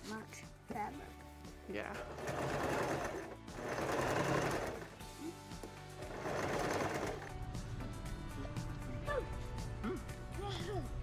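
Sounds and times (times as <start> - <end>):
background music: 0.0 - 11.0
sewing machine stitching: 2.1 - 5.0, 6.0 - 7.3.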